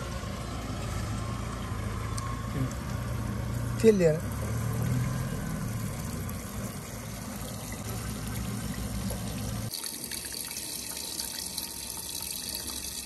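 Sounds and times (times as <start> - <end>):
diesel engine running: 0.0 - 9.7.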